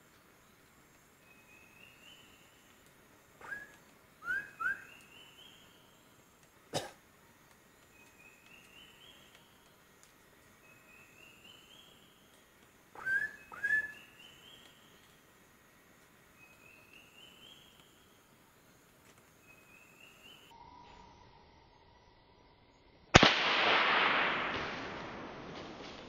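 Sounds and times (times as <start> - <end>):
upward sweeping whistled notes: 3.4 - 5.6, 13.0 - 14.6.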